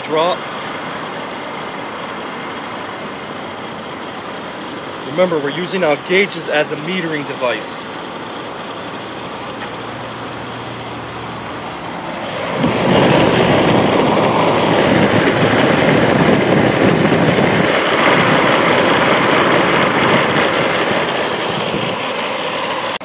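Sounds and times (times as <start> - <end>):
machine humming: 0.0 - 23.0.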